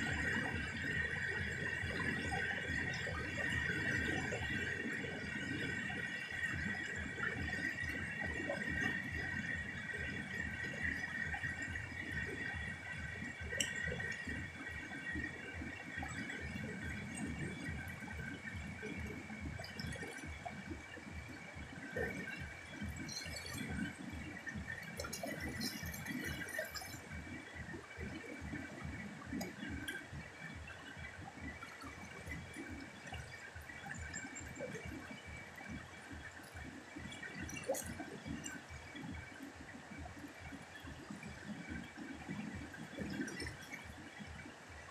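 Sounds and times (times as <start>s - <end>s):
river water rushing over rocks: 24.7s - 27.1s.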